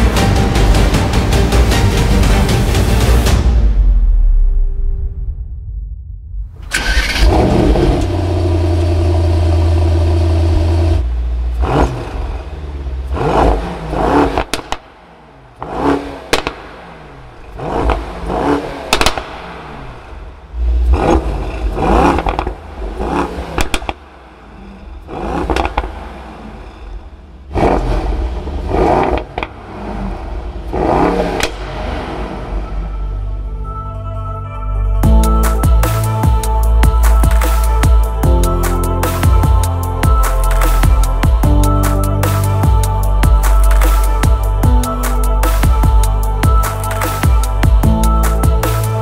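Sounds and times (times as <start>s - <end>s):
car engine idling and revving: 0.0s - 5.0s, 6.4s - 49.0s
exhaust cracks: 6.5s - 33.1s.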